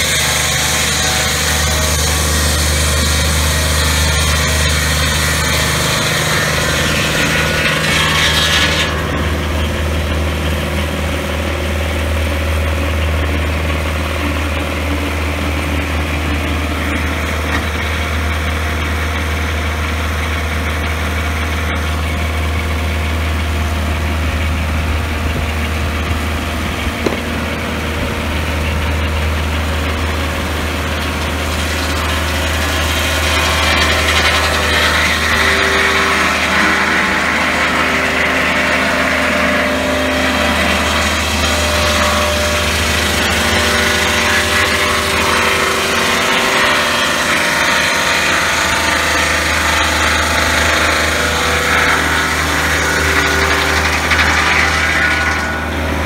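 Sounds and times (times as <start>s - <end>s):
circular blade cutting log: 0.0s - 9.3s, 26.8s - 56.0s
sawmill engine running: 0.0s - 56.0s.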